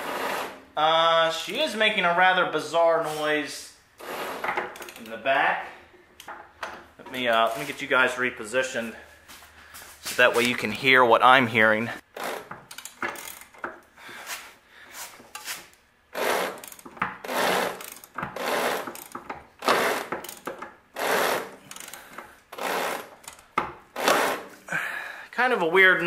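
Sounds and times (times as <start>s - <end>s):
engine being turned over by hand: 12.1s - 13.8s, 16.1s - 24.6s.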